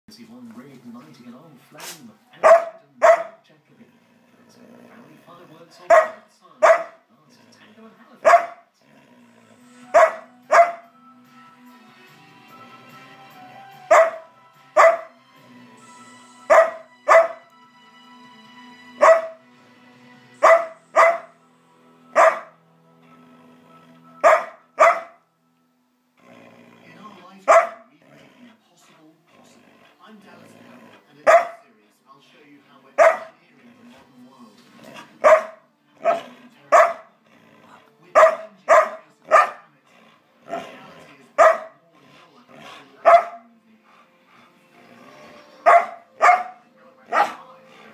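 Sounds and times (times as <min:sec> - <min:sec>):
faint background music: 0:00.1 - 0:47.9
dog barking: 0:02.4 - 0:03.4, 0:05.8 - 0:07.0, 0:08.2 - 0:08.7, 0:09.9 - 0:10.9, 0:13.9 - 0:15.1, 0:16.5 - 0:17.4, 0:19.0 - 0:19.4, 0:20.4 - 0:21.4, 0:22.1 - 0:22.6, 0:24.2 - 0:25.2, 0:27.5 - 0:27.9, 0:31.2 - 0:31.6, 0:33.0 - 0:33.4, 0:35.0 - 0:37.2, 0:38.1 - 0:39.7, 0:41.4 - 0:41.8, 0:43.0 - 0:43.4, 0:45.6 - 0:47.5.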